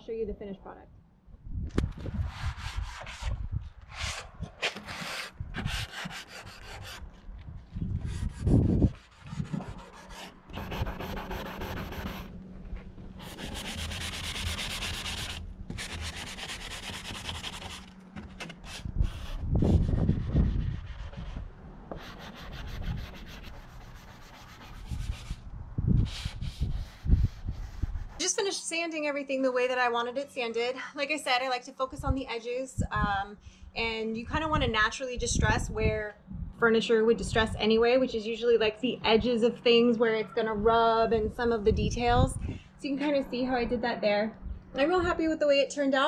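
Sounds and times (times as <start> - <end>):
sanding sponge rubbing painted wood: 4.8 - 7.0, 8.0 - 12.3, 13.2 - 17.9, 18.6 - 25.4, 26.0 - 28.3.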